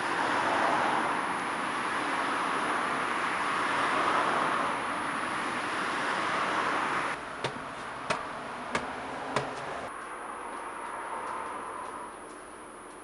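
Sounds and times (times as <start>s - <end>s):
street and traffic noise: 0.0s - 13.0s
hard shoes on tiled stairs: 7.4s - 10.2s.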